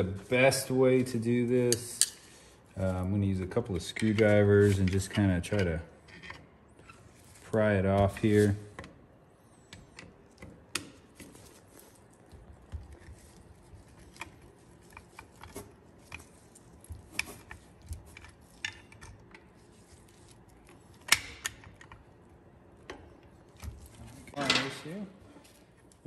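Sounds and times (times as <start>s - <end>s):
screwdriver clicking and scraping on metal: 13.8s - 19.5s.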